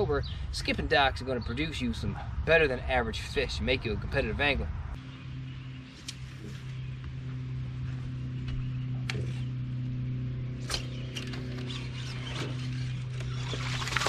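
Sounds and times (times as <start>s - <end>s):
electric trolling motor humming: 5.0s - 14.0s.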